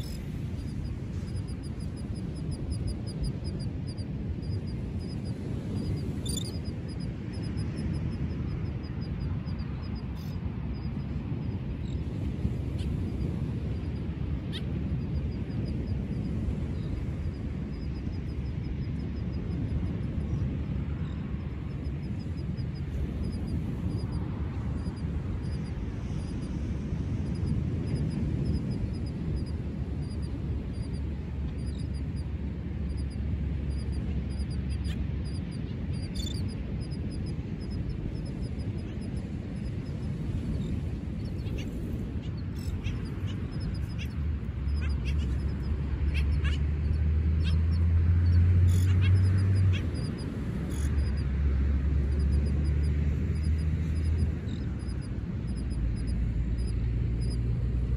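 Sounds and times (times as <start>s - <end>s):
low rumble of wind: 0.0s - 57.9s
seabirds barking calls: 41.4s - 47.8s, 48.7s - 51.1s.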